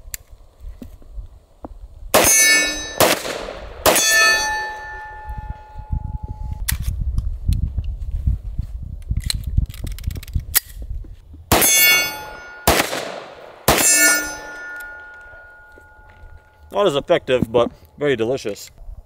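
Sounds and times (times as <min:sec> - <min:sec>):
gunshots: 0:02.2 - 0:04.7, 0:11.5 - 0:15.4
steel targets ringing: 0:02.2 - 0:06.4, 0:11.5 - 0:16.6.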